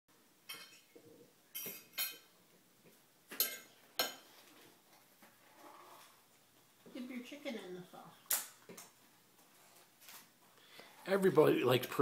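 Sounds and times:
cutlery clinking on plate: 0.4 - 2.3, 3.3 - 4.4.

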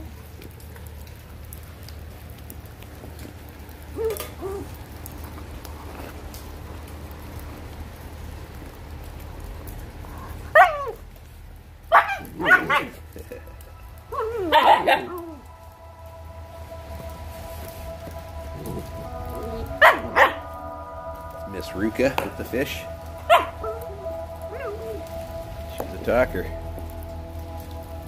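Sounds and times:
puppies yelping and yipping: 14.1 - 15.4.

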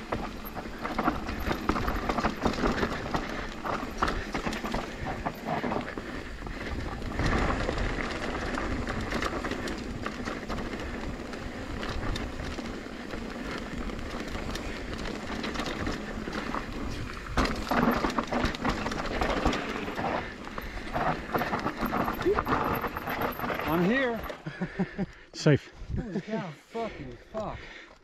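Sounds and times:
bike tyres rumbling over dirt: 0.0 - 25.0
bike chain and frame rattling: 0.0 - 25.2.

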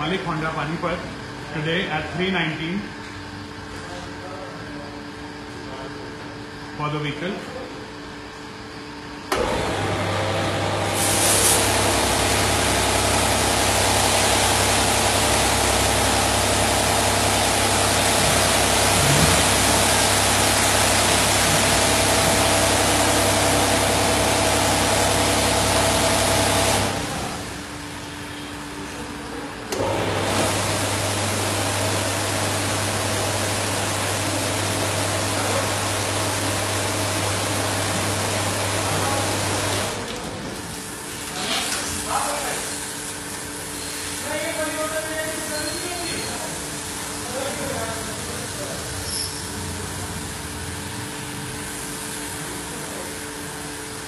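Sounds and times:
pump motor humming: 9.3 - 28.0, 29.7 - 41.4
water jets spraying: 9.8 - 27.7, 30.1 - 49.2.

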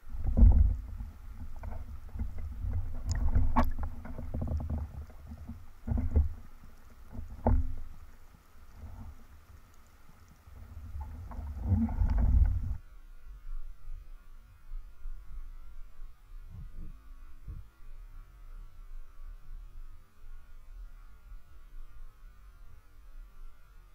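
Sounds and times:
muffled underwater water rumbling: 0.0 - 12.8
faint steady hiss and hum: 0.0 - 23.9.

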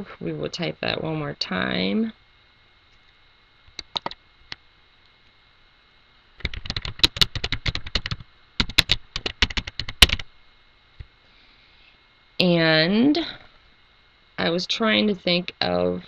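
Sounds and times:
typing on computer keyboard: 3.8 - 4.2, 6.4 - 10.2.

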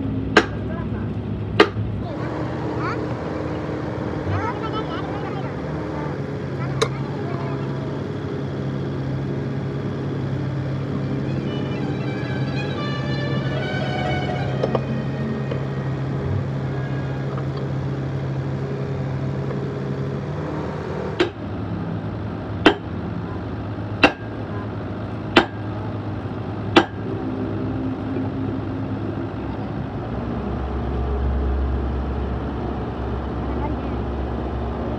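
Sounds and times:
low background hum: 0.0 - 34.9
sharp metal clanks: 24.0 - 24.4.

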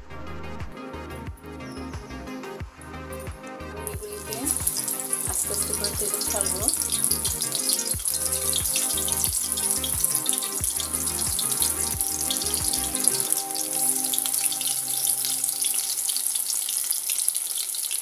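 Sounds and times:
background music: 0.0 - 17.0
food deep-frying in hot oil: 3.9 - 18.0.

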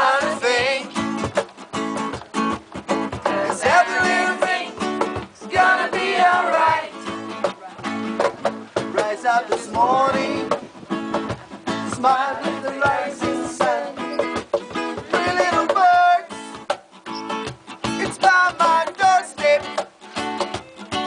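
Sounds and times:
people singing: 0.0 - 1.2, 3.1 - 7.4, 8.8 - 10.8, 11.7 - 16.3, 18.0 - 19.7
strummed guitar: 0.0 - 21.0.

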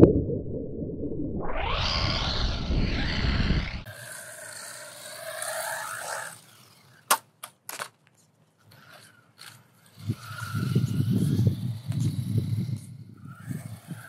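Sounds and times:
electric motor whine: 1.5 - 7.0.

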